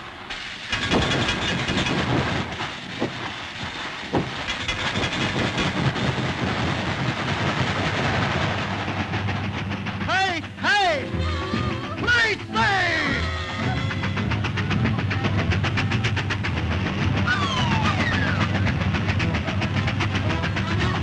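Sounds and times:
cartoon steam locomotive clatter: 0:00.0 - 0:21.0
hissing steam: 0:00.0 - 0:21.0
loud knocks: 0:00.8 - 0:10.0.

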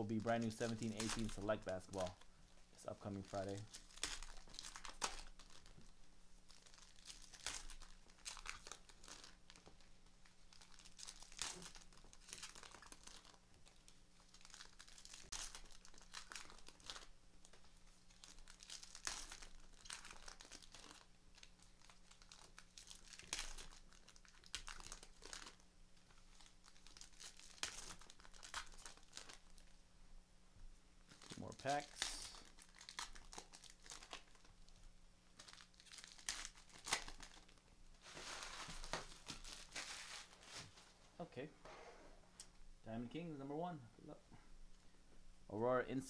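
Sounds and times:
wrappers crinkling and tearing: 0:00.0 - 0:29.8, 0:31.1 - 0:40.8.

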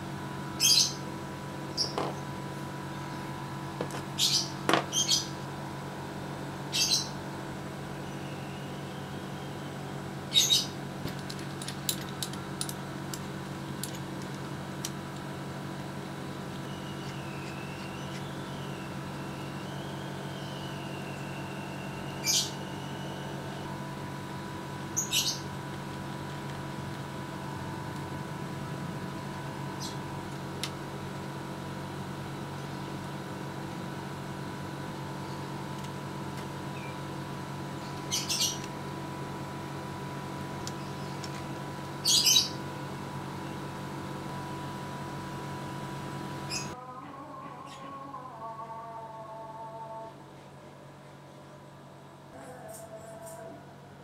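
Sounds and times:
steady hum: 0:00.0 - 0:54.0
high bird chirps: 0:16.7 - 0:23.3
wavering high whistle: 0:16.7 - 0:23.4.

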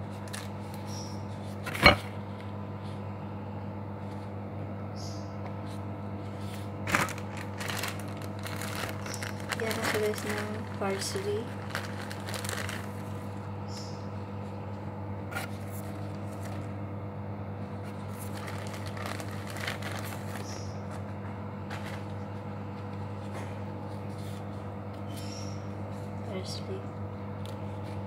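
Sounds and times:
plastic bag and gloves rustling: 0:00.0 - 0:00.7, 0:06.2 - 0:13.9, 0:15.3 - 0:16.7, 0:17.6 - 0:26.6
low steady hum: 0:00.0 - 0:28.0.

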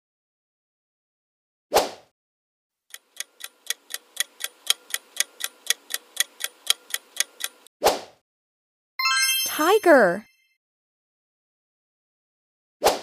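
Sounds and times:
clock ticking: 0:02.9 - 0:07.7.

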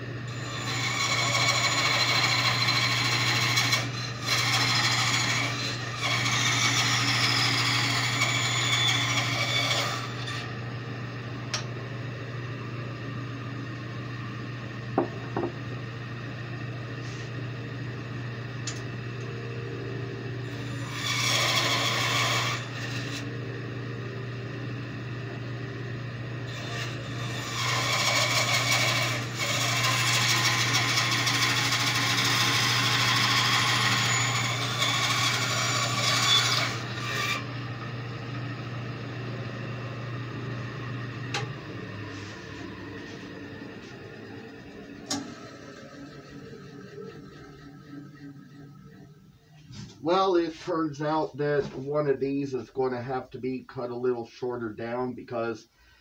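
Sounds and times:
bandsaw motor hum: 0:00.0 - 0:50.4
bandsaw blade cutting wood: 0:00.3 - 0:10.5, 0:20.5 - 0:23.3, 0:26.5 - 0:37.5.

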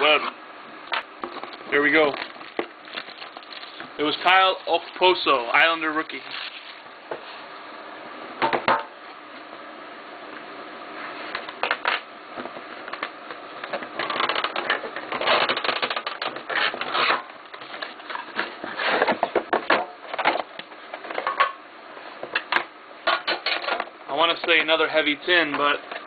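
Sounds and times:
plastic wrapper crackling: 0:01.5 - 0:05.1.

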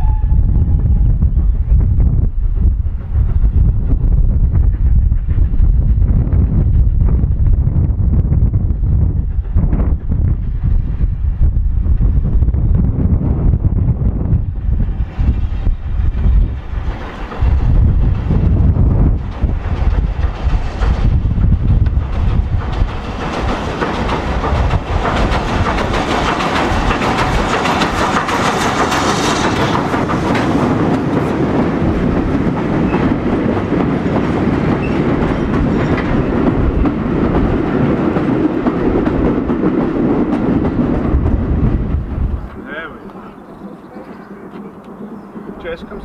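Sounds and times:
steam locomotive passing: 0:00.0 - 0:46.0
train coaches rolling past: 0:13.3 - 0:46.0.

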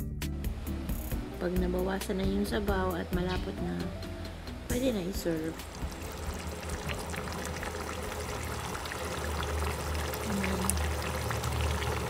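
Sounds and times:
stew bubbling and popping: 0:05.5 - 0:12.0.

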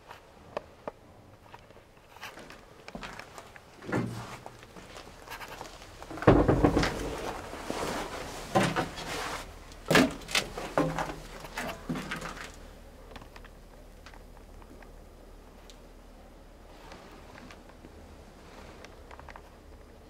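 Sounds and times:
knocks on steel interior: 0:06.2 - 0:07.2.

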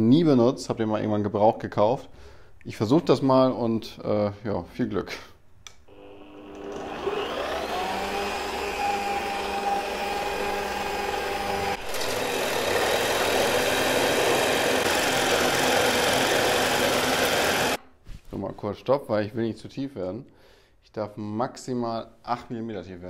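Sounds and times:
drill bit cutting plywood: 0:05.9 - 0:17.8
drill press motor whine: 0:05.9 - 0:17.8.

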